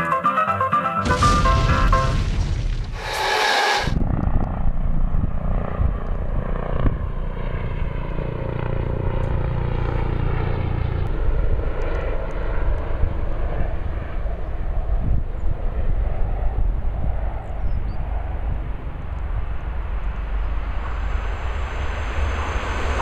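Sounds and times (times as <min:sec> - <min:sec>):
intro sound effect: 0:00.0 - 0:04.0, 0:20.2 - 0:23.0
small aircraft engine drone: 0:03.0 - 0:23.0
low rumble: 0:18.6 - 0:23.0.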